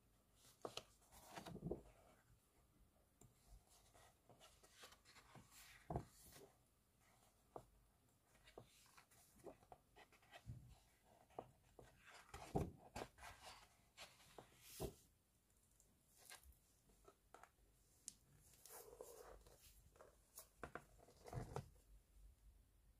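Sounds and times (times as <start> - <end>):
book pages turning and rustling: 0.4 - 2.1, 3.7 - 6.5, 8.3 - 15.0, 18.4 - 21.8.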